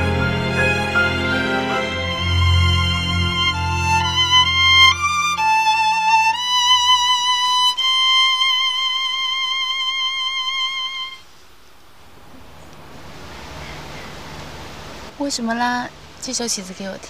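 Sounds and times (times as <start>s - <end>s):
low sustained accompaniment: 0.0s - 11.3s
solo violin melody: 0.0s - 11.3s.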